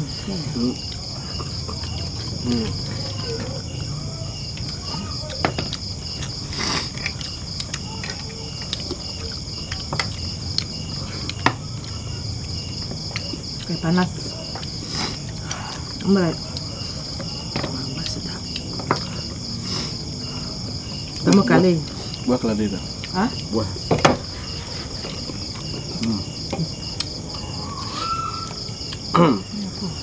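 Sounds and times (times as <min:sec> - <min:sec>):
insects chirring: 0:00.0 - 0:30.0.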